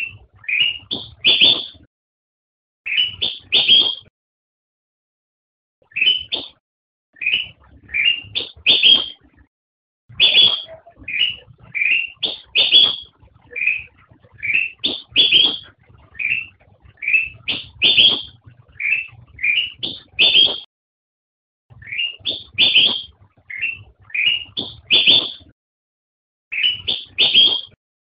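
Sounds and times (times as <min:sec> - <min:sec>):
bulbul singing: 0:00.0 - 0:01.9, 0:02.9 - 0:04.1, 0:05.8 - 0:06.6, 0:07.2 - 0:09.4, 0:10.1 - 0:20.7, 0:21.8 - 0:25.5, 0:26.5 - 0:27.8.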